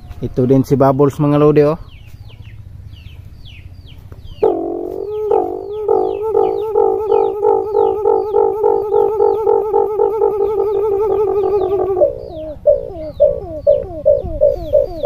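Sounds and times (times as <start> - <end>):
high falling chirps: 4.3 - 15.0
dove cooing: 4.4 - 15.0.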